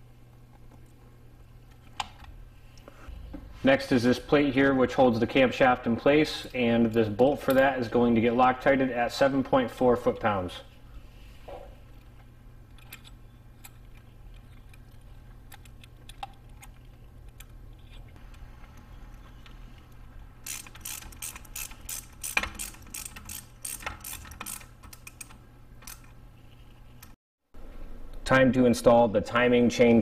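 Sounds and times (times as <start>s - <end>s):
small metal parts clicking: 20.4s - 26.2s
socket ratchet clicking: 20.4s - 26.2s.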